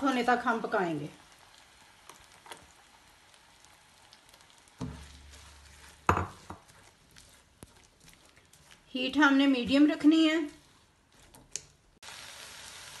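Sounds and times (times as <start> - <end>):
onions sizzling in oil: 0.0 - 13.0
spatula knocking and scraping pan: 4.8 - 11.5.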